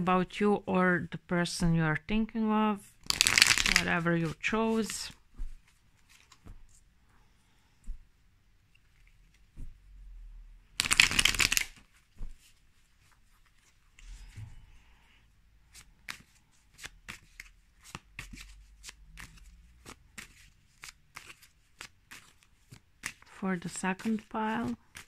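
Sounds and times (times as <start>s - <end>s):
cards being shuffled: 3.0s - 6.8s, 10.8s - 14.4s, 15.7s - 25.0s.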